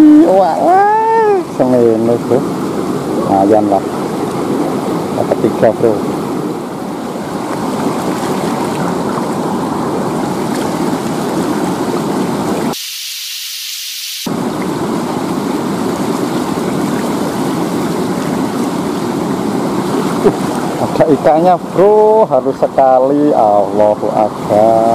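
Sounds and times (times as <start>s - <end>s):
river water rushing over rocks: 6.0s - 12.8s, 14.3s - 22.5s.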